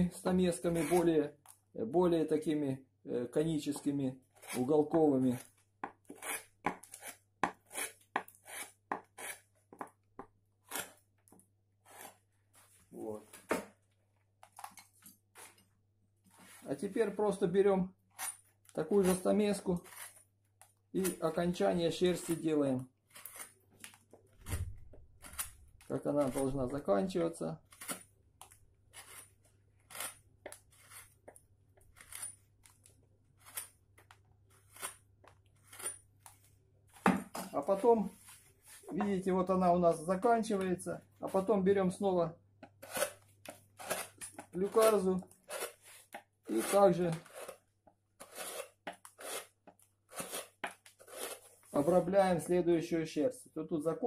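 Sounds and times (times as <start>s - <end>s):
chisel cutting into wood: 0.7s - 1.1s, 4.3s - 12.3s, 18.2s - 20.2s, 23.1s - 23.6s, 24.4s - 26.5s, 27.6s - 32.6s, 42.6s - 51.5s
gouge shaving wood: 4.3s - 9.9s, 18.9s - 20.2s, 42.8s - 52.1s.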